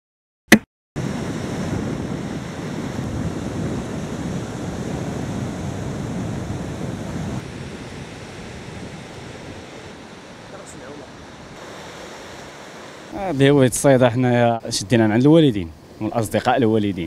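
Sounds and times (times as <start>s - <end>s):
surf breaking on rocks: 1.0s - 14.0s
wind rumbling on microphone: 1.0s - 14.0s.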